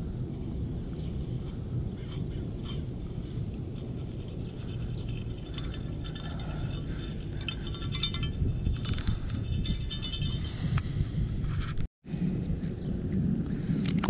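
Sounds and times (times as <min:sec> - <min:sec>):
steady low rumble: 0:00.0 - 0:14.0
sand scraping and sifting: 0:00.3 - 0:09.6.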